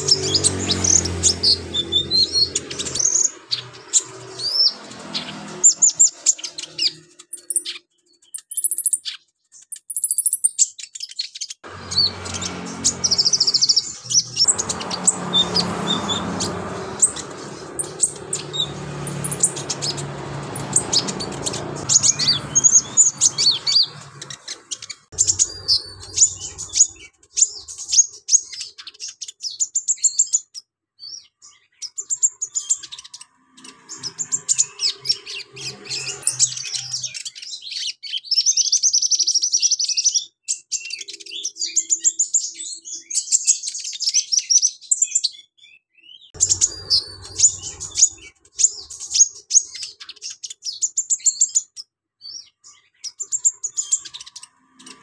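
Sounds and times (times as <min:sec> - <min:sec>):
bird high rapid chirping: 0:00.0 - 0:55.0.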